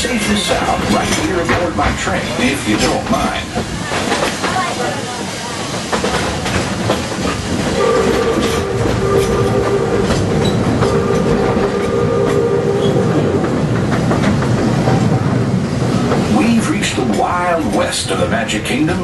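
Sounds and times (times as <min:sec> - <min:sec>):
steam train wheel clatter: 0:00.0 - 0:19.0
steam whistle chord blasts: 0:07.8 - 0:10.1.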